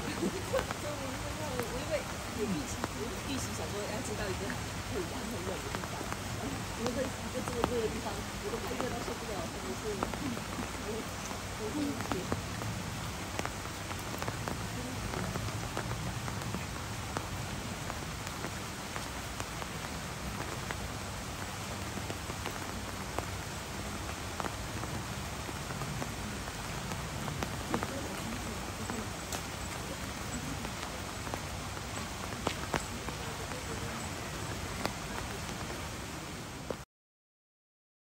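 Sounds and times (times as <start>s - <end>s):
rain on hard surfaces: 0.0s - 36.9s.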